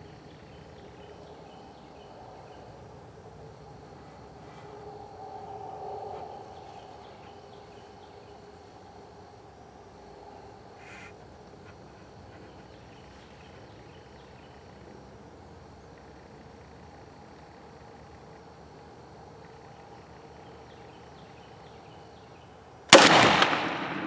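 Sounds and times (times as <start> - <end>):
high insect buzz: 0.0 - 23.0
animal call: 10.8 - 12.5.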